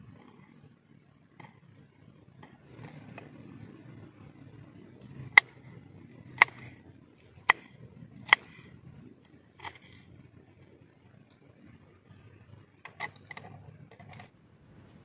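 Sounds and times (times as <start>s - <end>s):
knife chopping on wooden board: 6.4s - 6.7s, 7.4s - 8.6s.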